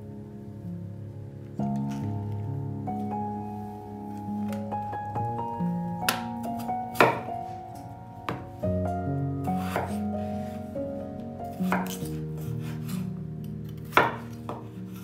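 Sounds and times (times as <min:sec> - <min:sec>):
background music: 0:00.0 - 0:15.0
knife chopping on cutting board: 0:06.9 - 0:07.3, 0:09.6 - 0:10.0, 0:11.6 - 0:13.0, 0:13.8 - 0:15.0.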